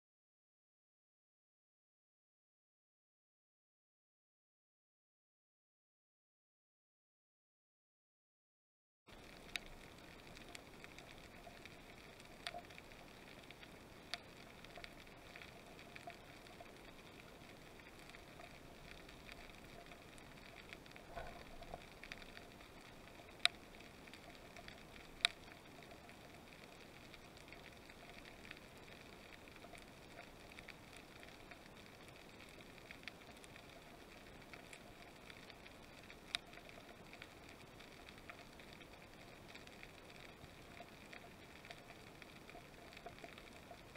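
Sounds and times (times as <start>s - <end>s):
low underwater hiss: 9.1s - 43.9s.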